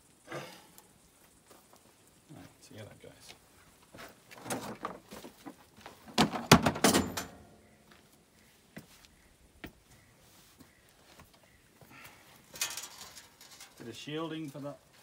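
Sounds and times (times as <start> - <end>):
metal parts clanking and scraping: 6.6 - 7.5, 12.5 - 13.9.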